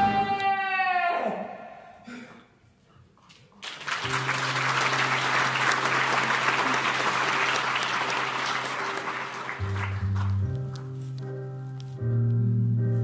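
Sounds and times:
audience applause: 3.6s - 10.6s.

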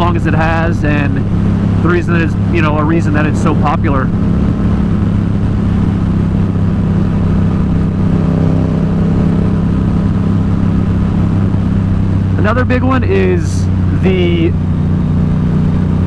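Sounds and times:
motorcycle engine cruising: 0.0s - 16.0s.

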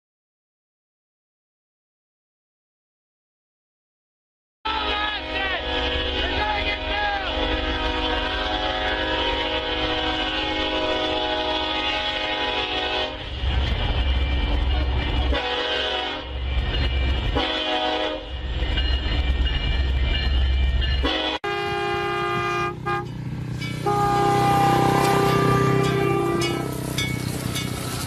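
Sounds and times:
horn-like chord: 4.7s - 13.3s, 14.8s - 16.4s, 17.4s - 18.3s, 21.0s - 23.2s, 23.8s - 26.9s
locomotive air horn blasts: 4.7s - 13.4s, 14.8s - 16.4s, 17.3s - 18.4s, 21.0s - 23.2s, 23.8s - 26.9s
locomotive engine rumble: 5.2s - 28.0s.

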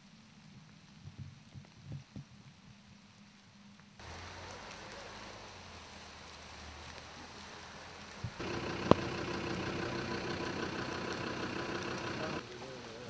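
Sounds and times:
vehicle engine idling: 4.0s - 12.5s.

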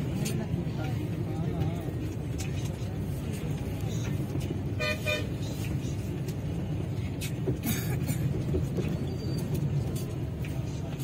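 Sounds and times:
bus engine and road rumble: 0.0s - 11.0s
vehicle horn toot: 4.8s - 5.3s.

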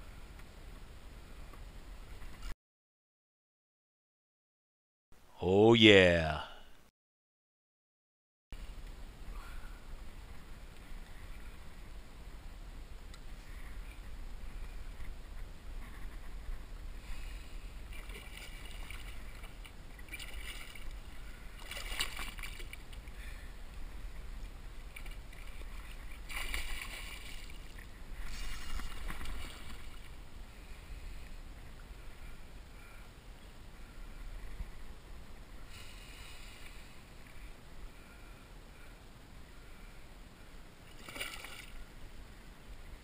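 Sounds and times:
water lapping around kayak: 13.3s - 32.2s
low wind rumble: 22.7s - 40.9s.

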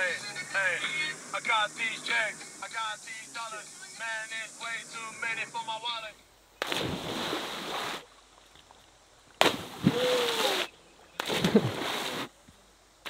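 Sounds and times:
bodies splashing into water: 6.6s - 8.8s, 9.4s - 12.3s.

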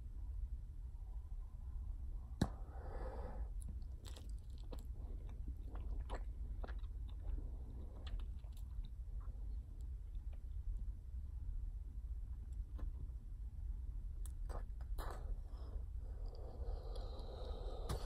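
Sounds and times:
gum chewing smacks: 3.6s - 9.3s.

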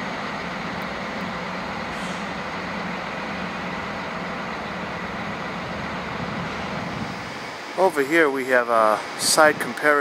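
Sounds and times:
diesel railcar engines running: 0.0s - 10.0s.

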